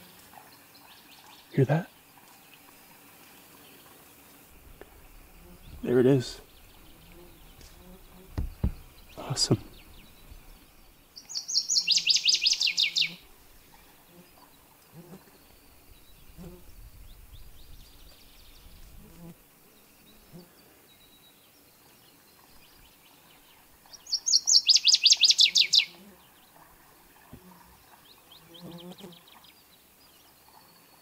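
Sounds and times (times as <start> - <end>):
hooves clopping: 2.6 - 11.0
songbird trilling: 4.7 - 14.5, 23.8 - 26.0.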